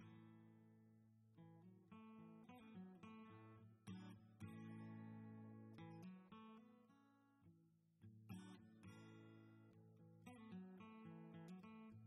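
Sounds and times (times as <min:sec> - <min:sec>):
plucked acoustic guitar: 0:01.4 - 0:06.9, 0:08.0 - 0:12.0.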